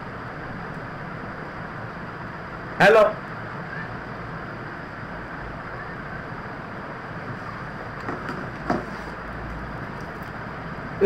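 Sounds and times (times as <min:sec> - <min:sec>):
room background noise: 0:00.0 - 0:11.0
soft knocks: 0:08.0 - 0:09.0.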